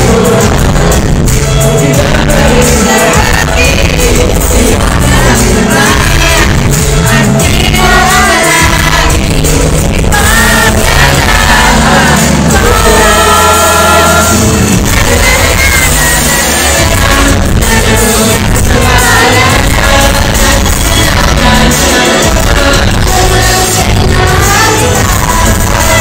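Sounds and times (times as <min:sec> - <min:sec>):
live pop music with singer: 0:00.0 - 0:26.0.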